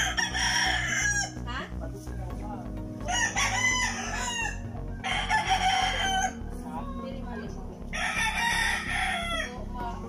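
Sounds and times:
roosters crowing: 0:00.0 - 0:01.5, 0:03.0 - 0:06.6, 0:07.9 - 0:09.7.

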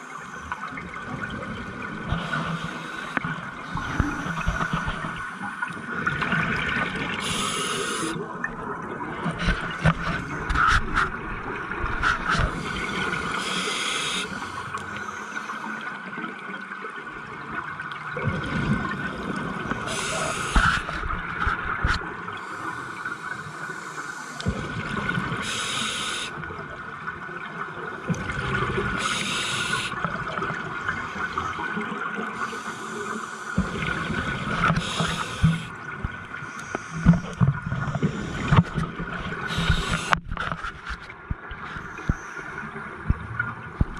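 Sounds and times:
exhaled bubbles gurgling: 0:00.0 - 0:40.6
regulator inhalation hiss: 0:07.2 - 0:08.2, 0:13.4 - 0:15.6, 0:19.9 - 0:20.9, 0:25.4 - 0:26.4, 0:29.0 - 0:30.0, 0:34.8 - 0:35.7, 0:39.5 - 0:40.2.

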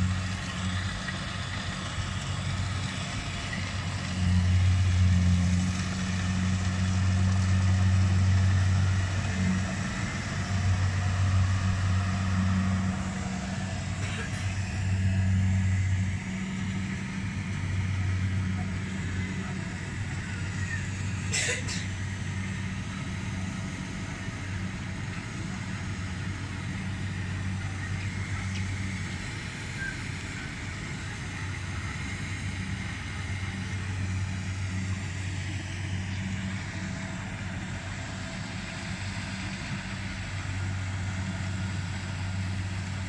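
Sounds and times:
combine harvester engine droning: 0:00.0 - 0:43.0.

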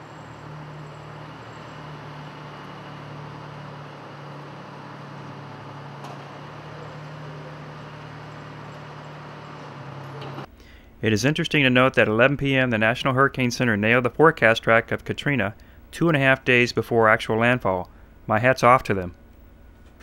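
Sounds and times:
low machinery drone: 0:00.0 - 0:15.9.

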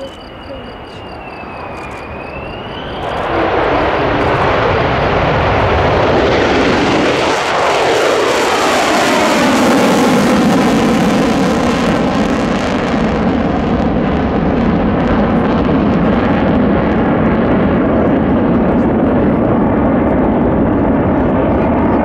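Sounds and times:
jet engine roaring in afterburner: 0:00.0 - 0:22.0.

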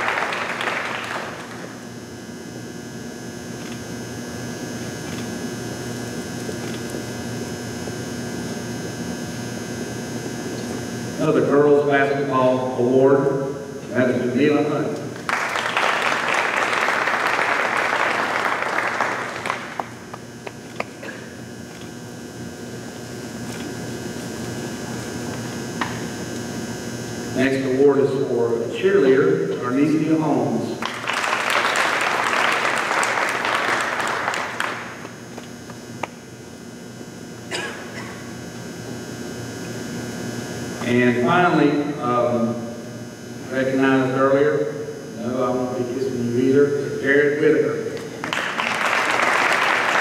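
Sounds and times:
audience applauding: 0:00.0 - 0:01.7, 0:15.2 - 0:19.9, 0:30.8 - 0:35.1, 0:48.2 - 0:50.0.

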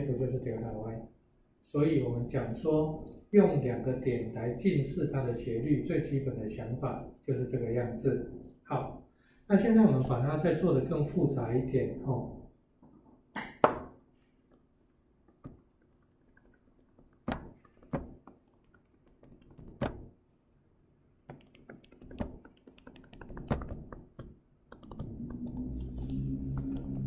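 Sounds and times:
stylus tapping on tablet: 0:15.2 - 0:20.1, 0:21.3 - 0:26.0.

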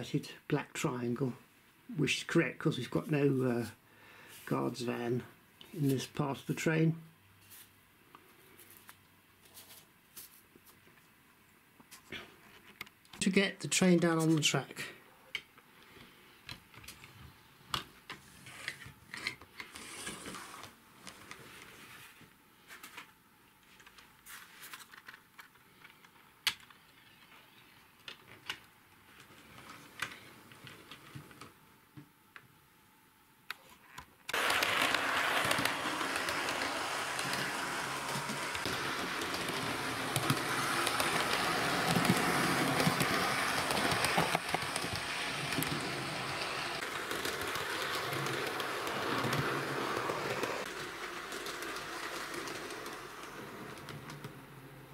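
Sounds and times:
model train motor hum: 0:34.3 - 0:54.3
wheels on rails: 0:34.3 - 0:54.9.

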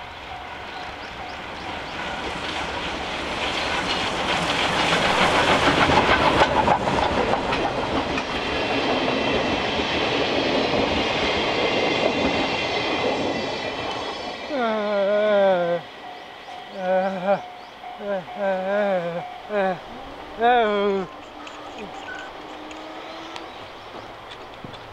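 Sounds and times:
steam locomotive exhaust chuffing: 0:00.0 - 0:24.9
train wheels clattering over rail joints: 0:01.2 - 0:14.5, 0:21.1 - 0:24.9.

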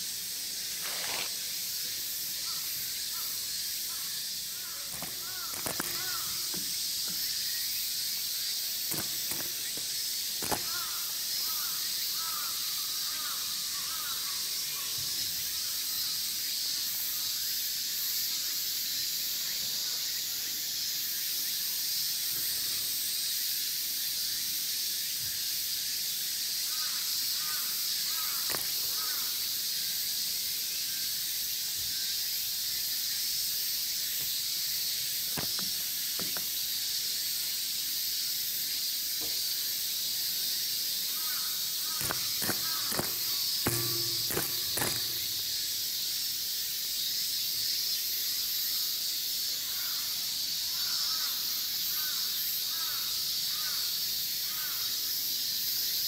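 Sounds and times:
cicadas droning: 0:00.0 - 0:56.0
sharp taps: 0:42.0 - 0:45.4.

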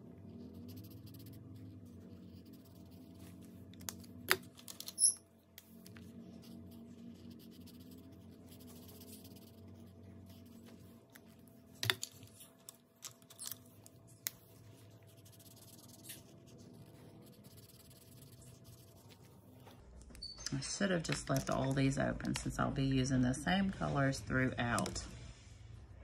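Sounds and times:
marker scratching on paper: 0:00.3 - 0:03.6, 0:05.0 - 0:12.6, 0:13.3 - 0:19.7.

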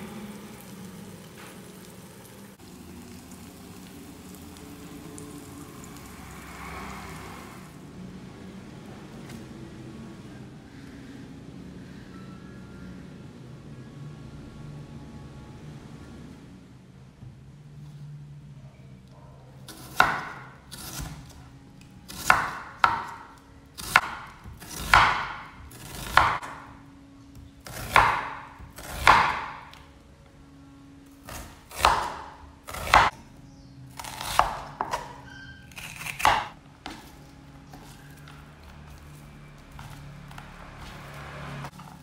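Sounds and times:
knife slicing onion on board: 0:22.0 - 0:23.2, 0:23.8 - 0:26.6, 0:27.6 - 0:29.6, 0:31.2 - 0:33.1, 0:34.0 - 0:38.0.

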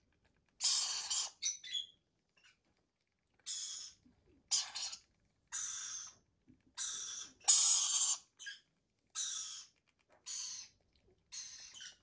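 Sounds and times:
baby parrot raspy begging squawks: 0:00.6 - 0:01.8, 0:03.4 - 0:06.2, 0:06.8 - 0:12.0.

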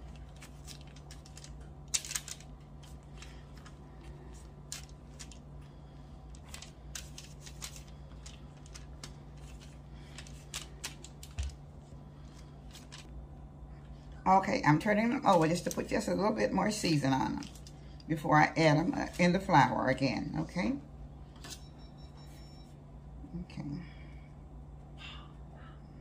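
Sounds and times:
aluminium foil crinkling: 0:00.0 - 0:13.1, 0:15.0 - 0:16.2, 0:17.3 - 0:18.0
faint low hum: 0:00.0 - 0:26.0.

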